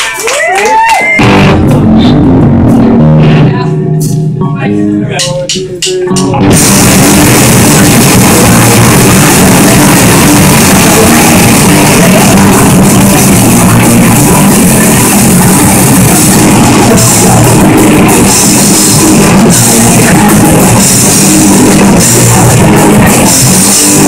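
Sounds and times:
shouted vocals: 0.0s - 1.2s
distorted electric guitars: 0.0s - 24.0s
drum kit playing fast: 0.8s - 4.4s, 5.1s - 24.0s.

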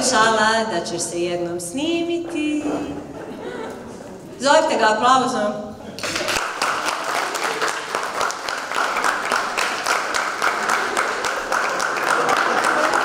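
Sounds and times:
audience applauding: 6.0s - 13.0s.

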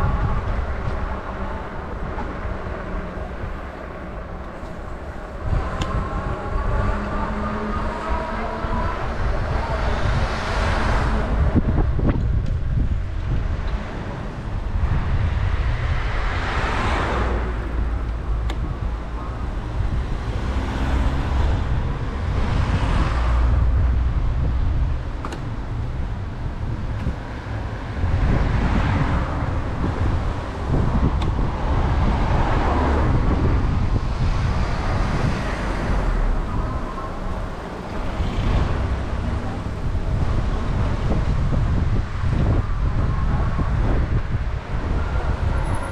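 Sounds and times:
cars passing: 0.0s - 45.9s
wind rumble on microphone: 0.0s - 45.9s.

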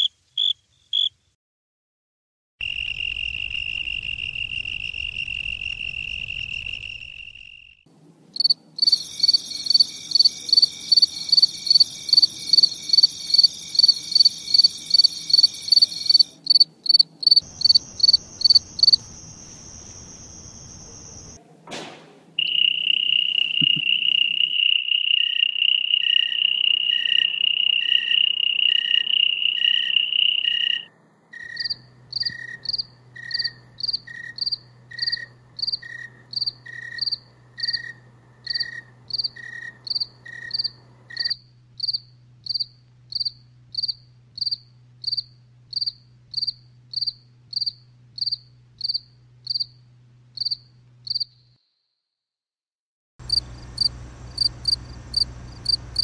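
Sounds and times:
crickets chirping: 2.6s - 7.8s, 8.4s - 21.4s, 22.4s - 49.8s, 50.4s - 51.5s, 53.2s - 56.0s
low steady hum: 30.9s - 51.1s, 53.2s - 56.0s.

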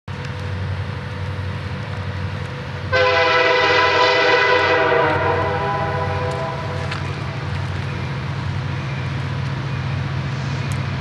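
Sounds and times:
low rumble of train: 0.1s - 11.0s
locomotive air horn chord: 2.9s - 7.4s.

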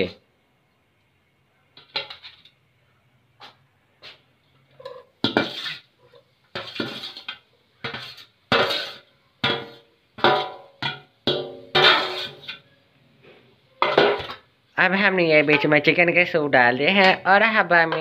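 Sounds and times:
metal utensil scraping a pan: 1.8s - 2.6s, 4.0s - 14.4s, 15.3s - 16.0s.

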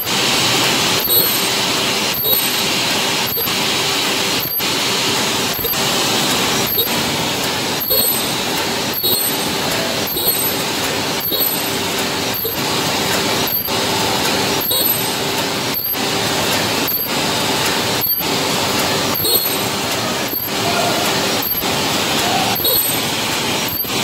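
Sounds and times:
sealing machine clatter and whir: 0.0s - 24.0s
short high-pitched tone: 1.0s - 1.5s.

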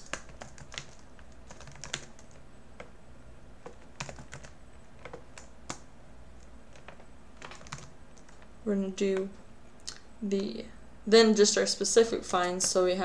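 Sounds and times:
keyboard typing: 0.0s - 2.9s, 3.6s - 8.5s.

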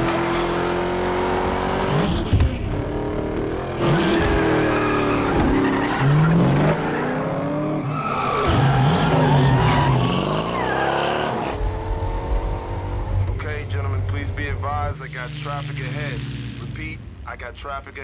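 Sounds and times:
car engines revving: 0.0s - 18.0s
tyres squealing and skidding: 3.7s - 11.6s.

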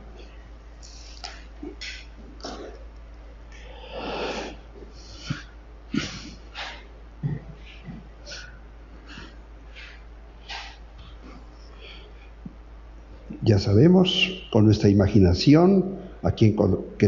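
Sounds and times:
breaths and rustles on microphone: 3.9s - 12.6s.

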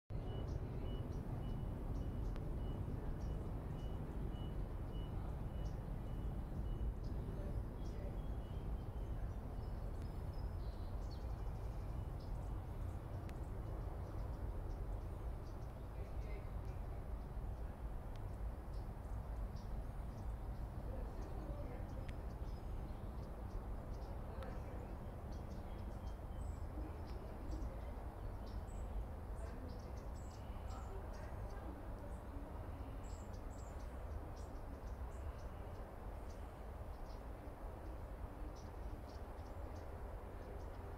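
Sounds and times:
faint bird chirps: 0.1s - 40.9s
steady low rumble: 0.1s - 40.9s.

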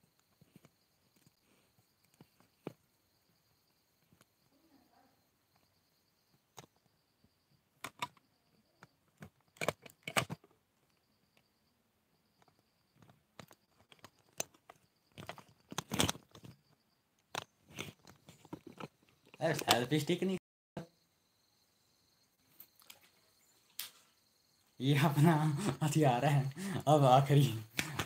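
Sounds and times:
phone handling noise: 9.2s - 10.4s.

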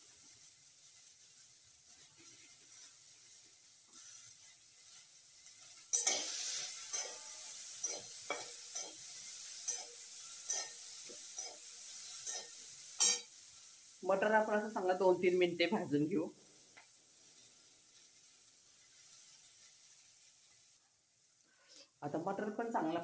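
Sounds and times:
peas sizzling in pan: 0.0s - 23.0s
metal spatula scraping a pan: 3.9s - 13.3s.

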